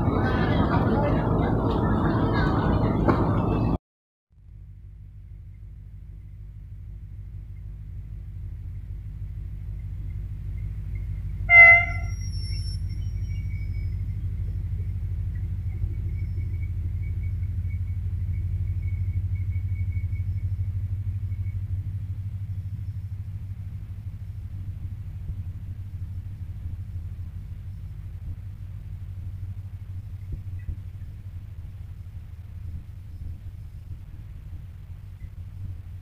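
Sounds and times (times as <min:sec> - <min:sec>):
diesel locomotive engine rumbling: 0:00.0 - 0:03.8, 0:04.4 - 0:36.0
thin high whine: 0:11.5 - 0:14.1.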